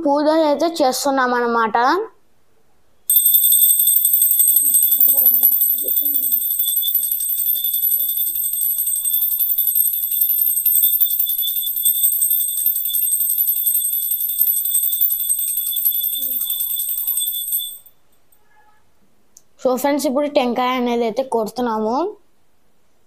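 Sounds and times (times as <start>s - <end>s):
hand bell ringing rapidly: 3.1s - 17.9s.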